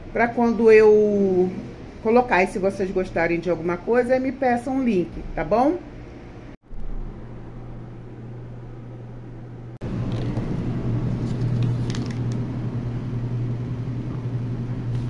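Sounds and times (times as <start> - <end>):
low hum: 5.2 - 15.0.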